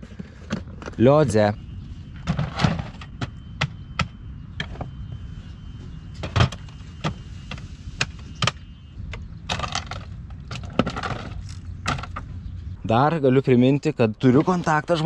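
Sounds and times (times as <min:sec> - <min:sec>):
plastic toolboxes clicking and knocking: 0:09.5 - 0:12.3.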